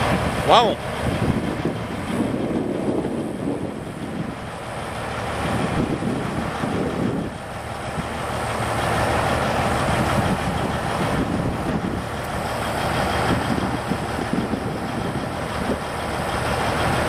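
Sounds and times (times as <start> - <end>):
heavy diesel engine idling: 0.0 - 17.0.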